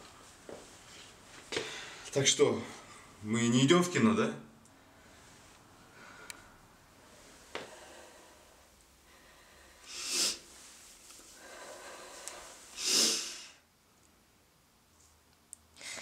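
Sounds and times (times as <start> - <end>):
quiet breathing: 0.2 - 3.2, 4.7 - 13.6.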